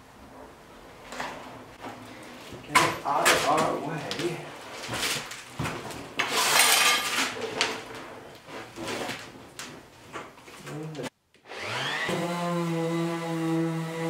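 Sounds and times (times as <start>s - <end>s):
electric sander whining: 11.5s - 14.0s.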